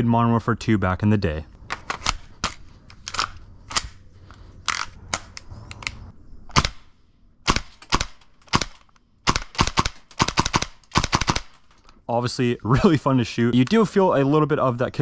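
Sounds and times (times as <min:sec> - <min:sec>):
airsoft rifle shots: 0:06.5 - 0:11.7.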